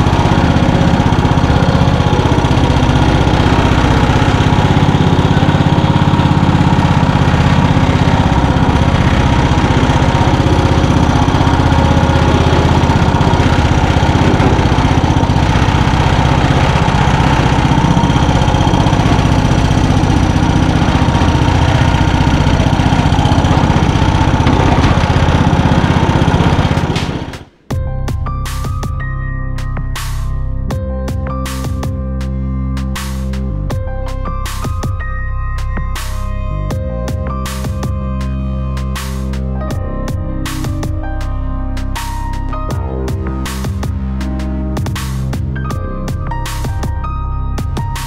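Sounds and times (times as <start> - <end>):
lawn tractor engine running: 0.0 - 27.7.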